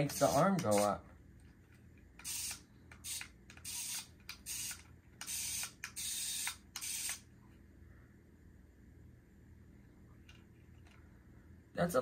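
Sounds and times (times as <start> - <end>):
tiny electric motors whirring: 2.2 - 7.2.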